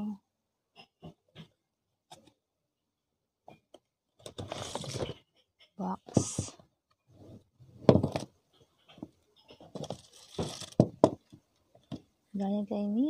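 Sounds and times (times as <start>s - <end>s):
ribbon rustling and scraping: 4.2s - 5.2s, 6.1s - 8.3s, 8.9s - 11.9s.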